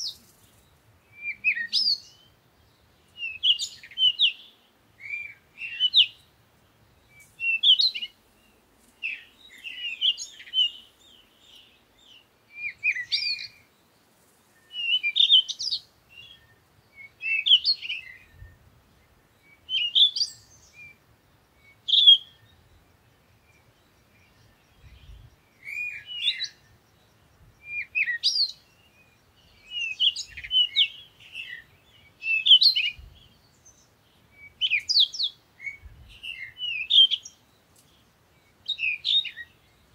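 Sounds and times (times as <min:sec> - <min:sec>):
songbirds chirping and twittering: 0:00.0 - 0:39.9.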